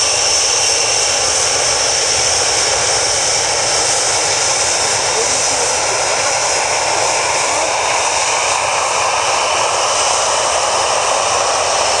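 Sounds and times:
jet engines rush and whine: 0.0s - 12.0s.

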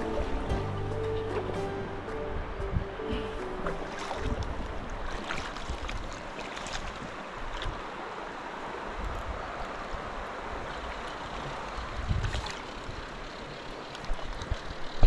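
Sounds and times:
river water running over stones: 0.0s - 15.0s
wind buffeting microphone: 11.5s - 13.3s.

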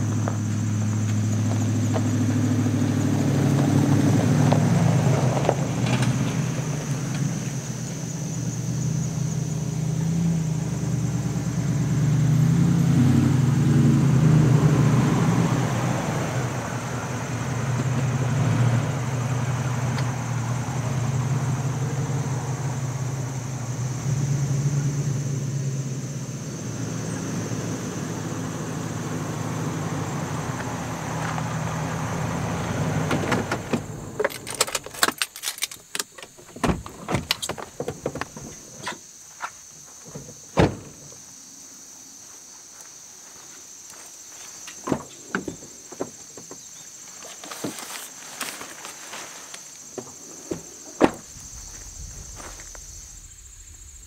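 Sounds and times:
keys jingling: 34.2s - 36.4s
truck engine running: 51.2s - 54.0s.

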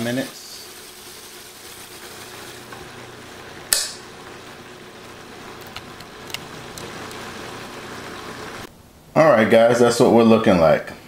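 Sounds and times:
chicken sizzling in oil: 0.0s - 8.7s.

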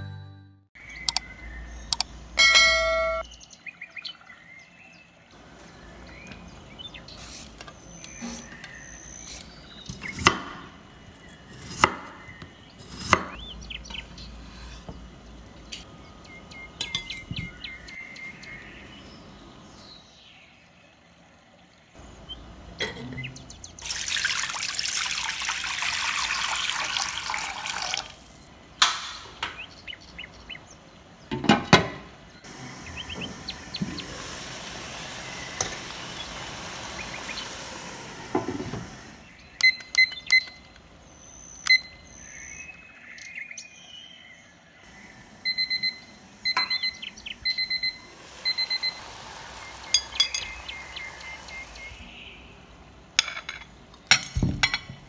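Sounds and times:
water hissing as it heats: 23.8s - 28.5s, 32.5s - 39.4s, 44.9s - 52.2s
water running into wok: 23.8s - 28.5s, 32.5s - 39.2s, 46.2s - 52.2s.

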